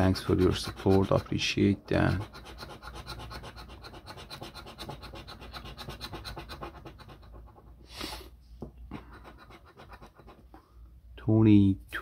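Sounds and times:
coin scratching lottery ticket: 0.0 - 7.7, 9.1 - 10.4.

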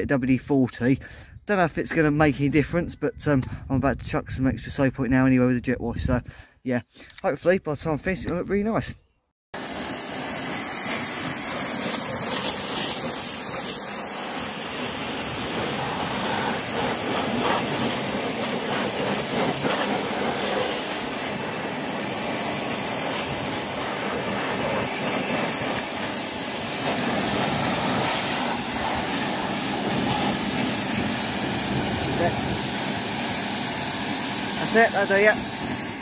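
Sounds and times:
pressure washer spraying water: 9.6 - 36.0.

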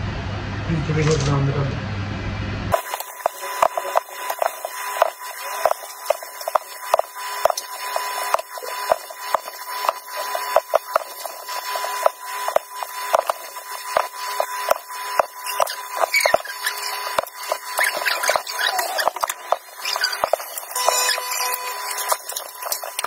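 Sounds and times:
dough being rolled by hand: 2.7 - 23.0.

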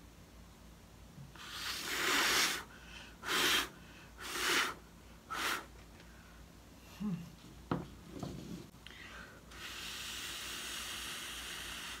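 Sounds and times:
person blowing through lips: 1.3 - 5.7, 9.5 - 12.0.

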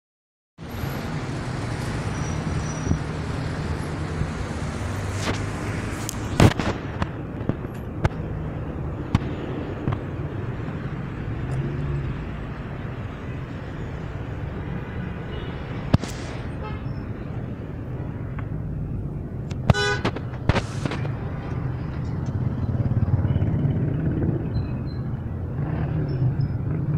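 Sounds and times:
city street traffic: 0.6 - 26.9
sharp bangs: 15.9 - 16.6.

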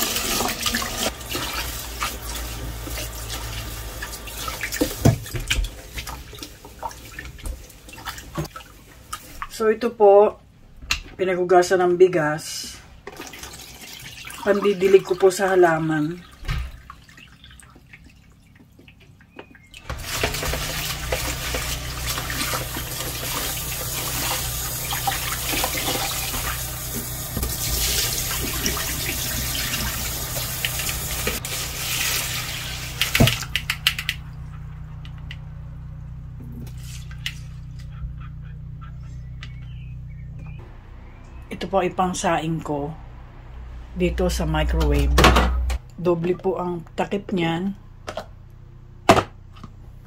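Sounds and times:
tap water running into sink: 0.0 - 9.4, 19.9 - 34.2
steady low hum: 19.9 - 50.0.

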